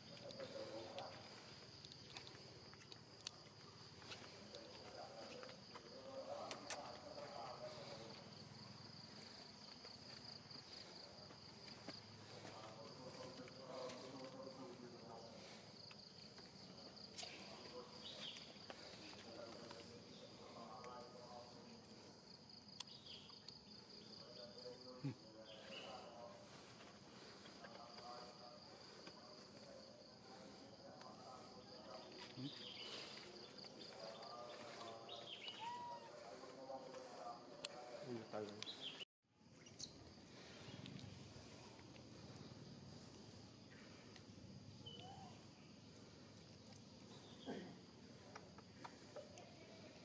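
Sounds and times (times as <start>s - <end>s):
insects chirring: 0.0s - 50.0s.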